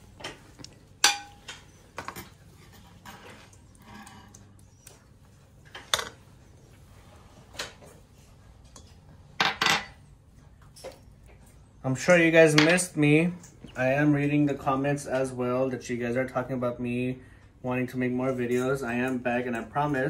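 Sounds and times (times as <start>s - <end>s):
glass bowls clinking on steel bowl: 1.0s - 1.5s.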